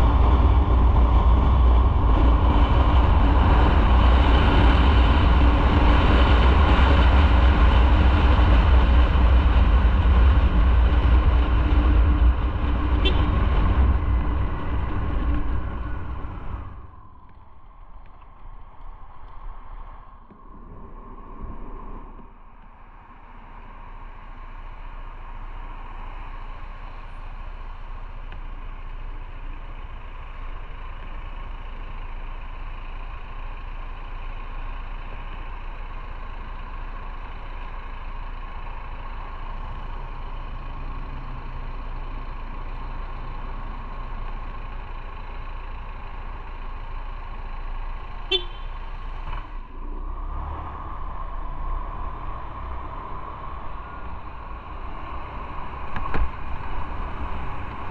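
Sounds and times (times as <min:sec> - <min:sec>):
motorcycle engine: 0:00.0 - 0:57.9
motorcycle horn toot: 0:13.0 - 0:13.4, 0:48.3 - 0:48.8.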